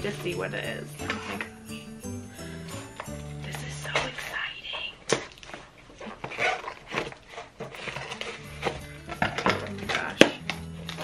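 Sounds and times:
wrapping paper rustling: 3.1 - 11.0.

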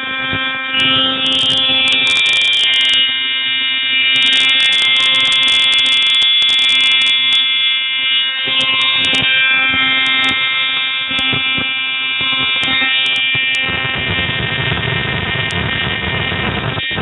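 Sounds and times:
ignition spark gap buzzing: 0.0 - 17.0
high spark crackle: 8.5 - 17.0.

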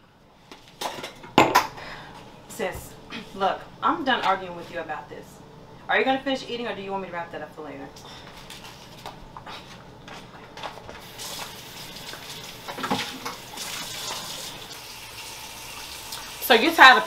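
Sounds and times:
tap running into sink: 12.1 - 14.3.

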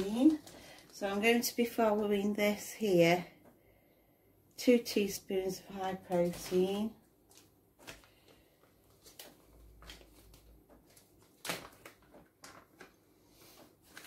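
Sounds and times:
plastic bag rustling: 0.0 - 2.1, 5.8 - 14.0.

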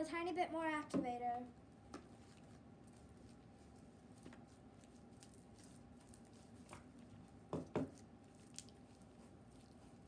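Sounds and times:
slime squishing: 2.1 - 10.0.

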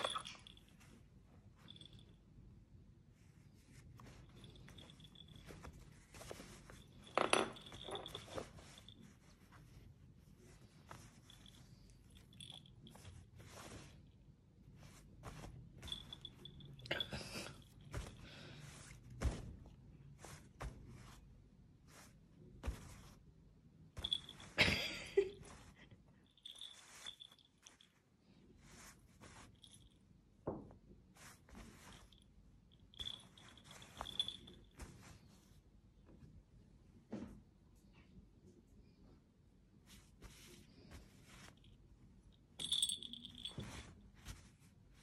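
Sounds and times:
cat collar bell jingling: 0.0 - 0.8, 6.7 - 9.2, 15.8 - 18.2, 26.3 - 28.0, 32.8 - 34.7, 42.6 - 43.9
cloth rustling: 3.0 - 30.0, 31.0 - 35.7, 39.8 - 45.0.

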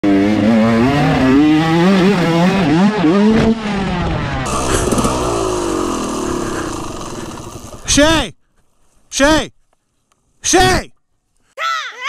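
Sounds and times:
dirt bike engine revving: 0.0 - 8.0.

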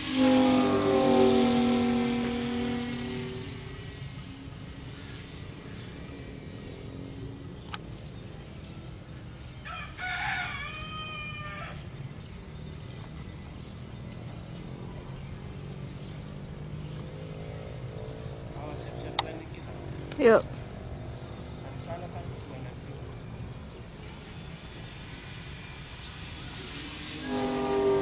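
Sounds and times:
steady low hum: 0.0 - 9.7.

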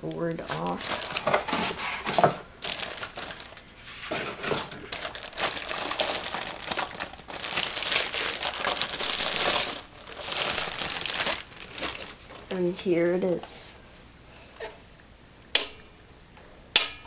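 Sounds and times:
plastic packaging crinkling: 0.0 - 12.8.

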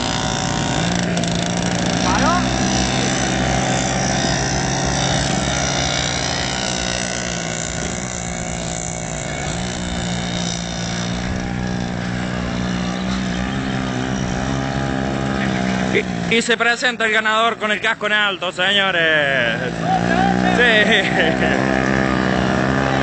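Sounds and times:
motorcycle engines droning: 0.0 - 23.0.

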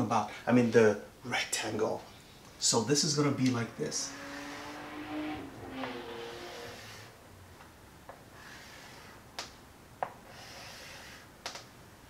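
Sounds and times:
chalk scraping on blackboard: 8.4 - 9.2, 10.2 - 11.3.

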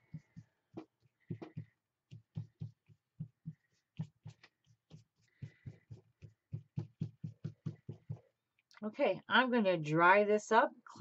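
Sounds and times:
paintbrush soft thumps on paper: 0.0 - 8.4.

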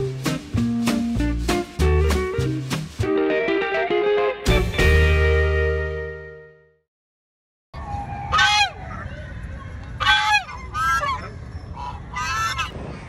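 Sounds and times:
honking bird calls: 8.0 - 12.8.

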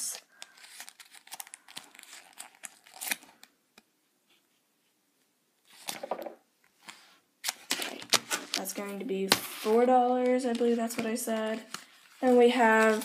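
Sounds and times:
duct tape wallet crinkling: 0.2 - 3.9, 6.8 - 13.0.

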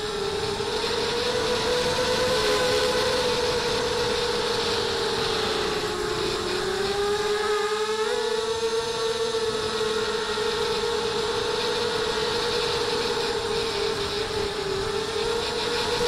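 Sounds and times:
quadcopter motors whining: 0.0 - 16.0.

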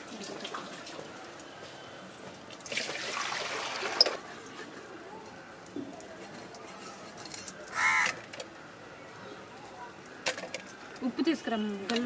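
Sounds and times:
water pouring: 2.5 - 4.3.

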